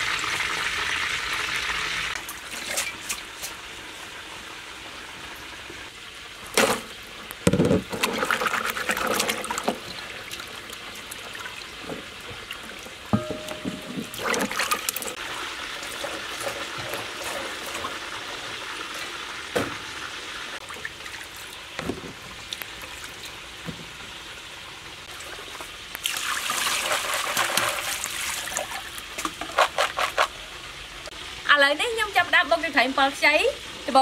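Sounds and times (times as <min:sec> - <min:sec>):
tap water pouring: 0:07.4 - 0:23.9, 0:25.1 - 0:30.3
water splashing in a bowl: 0:07.8 - 0:19.7, 0:25.1 - 0:30.3.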